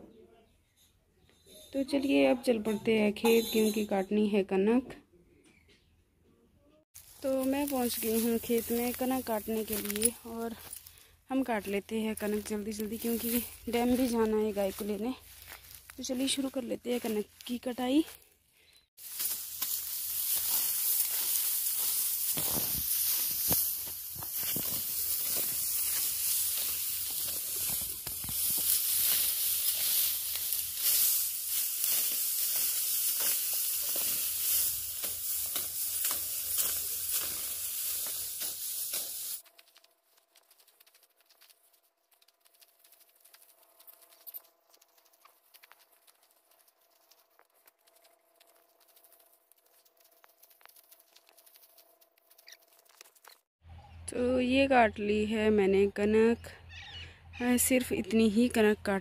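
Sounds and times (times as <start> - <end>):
wheat stalks crackling when cut: 7.0 - 18.2, 19.0 - 53.5.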